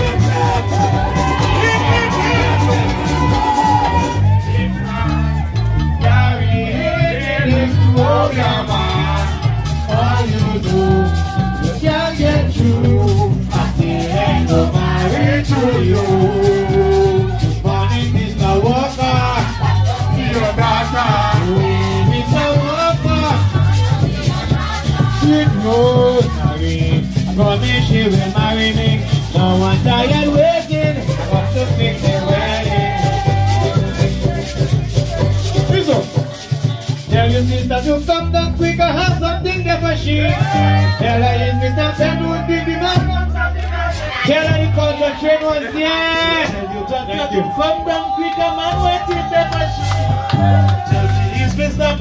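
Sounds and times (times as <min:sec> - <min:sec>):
people singing: 0:00.0 - 0:38.3, 0:39.6 - 0:46.7, 0:48.5 - 0:52.0
banjo: 0:00.0 - 0:39.2
mallet-struck drum beat: 0:00.0 - 0:42.4, 0:48.5 - 0:52.0
acoustic guitar: 0:00.0 - 0:46.6, 0:48.7 - 0:52.0
shaker rhythm: 0:00.0 - 0:46.6, 0:47.4 - 0:52.0
bass guitar: 0:00.0 - 0:52.0.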